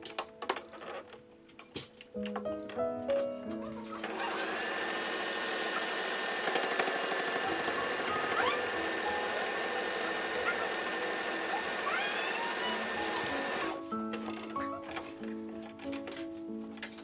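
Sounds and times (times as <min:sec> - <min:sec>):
sewing machine stitching: 0:03.9 - 0:15.0.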